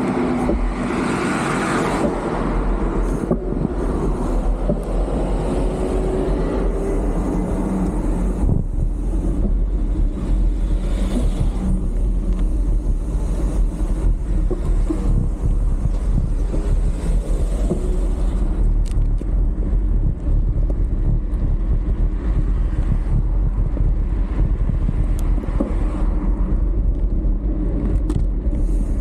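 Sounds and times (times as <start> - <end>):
wind buffeting microphone: 2.0 - 29.0.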